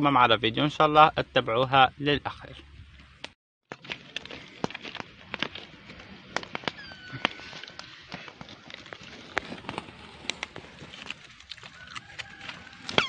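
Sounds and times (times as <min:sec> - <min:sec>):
embers crackling and popping: 0:03.0 - 0:13.0.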